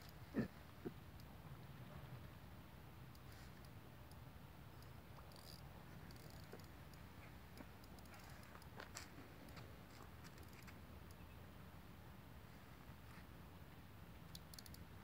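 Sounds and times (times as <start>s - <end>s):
fishing reel clicking: 5.3s - 6.6s, 14.3s - 14.8s.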